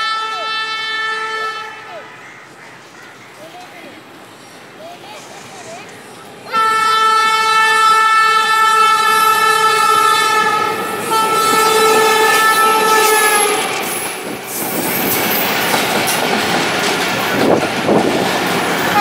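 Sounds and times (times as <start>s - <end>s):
locomotive horn blast: 0.0s - 1.9s, 6.5s - 14.0s
train coaches rumbling past: 0.0s - 19.0s.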